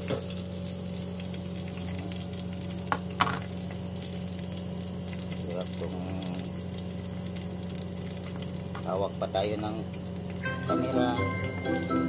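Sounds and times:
onion sizzling in oil: 0.0 - 12.0.

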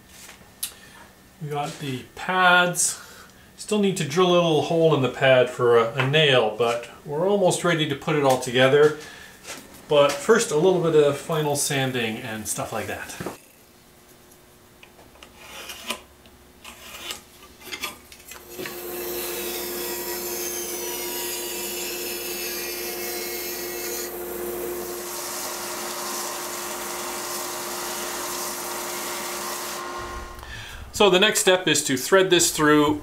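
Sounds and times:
band saw cutting wood: 18.4 - 31.1
belt sander sanding wood: 18.5 - 30.4.

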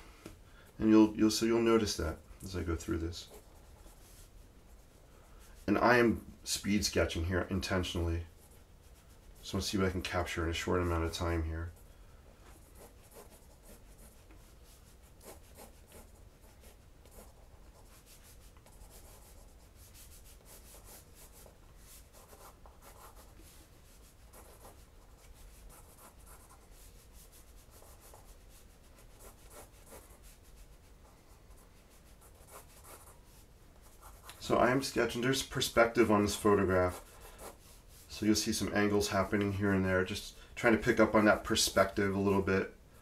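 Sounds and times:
marker scratching on paper: 2.8 - 4.9, 12.4 - 34.7.

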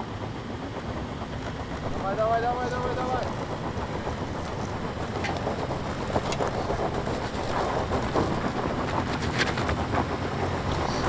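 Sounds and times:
car engine running low: 0.0 - 11.0
tyres crunching over loose rock: 1.5 - 11.0
stones snapping under wheels: 3.7 - 10.0.

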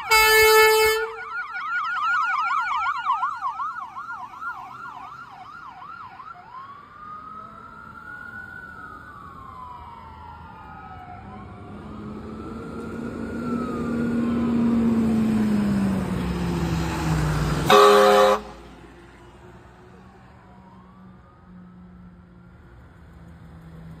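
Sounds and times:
fire engine horn blast: 0.0 - 1.3, 17.6 - 18.8
ambulance siren: 0.0 - 22.7
fire engine siren wailing: 0.0 - 23.0
fire engine passing: 0.0 - 24.0.

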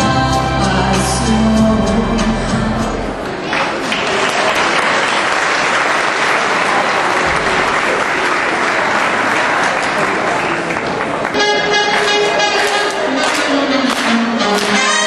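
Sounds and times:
audience applauding: 3.3 - 15.0.

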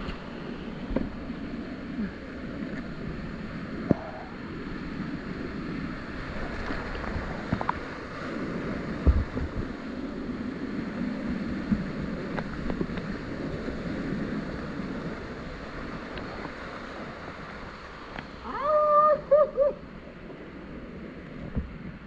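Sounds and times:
whitewater rapids rushing: 14.8 - 19.8
person shouting: 18.4 - 19.8.

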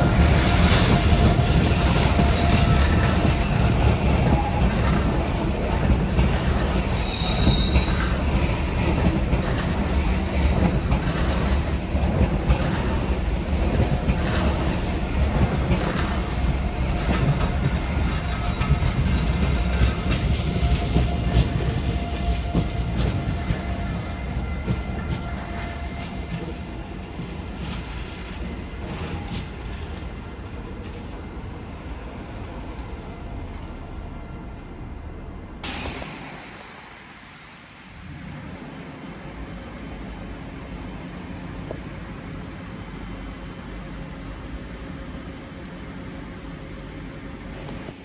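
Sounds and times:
train wheels rumbling on rails: 0.0 - 48.0
wheel squeals: 6.8 - 8.1.

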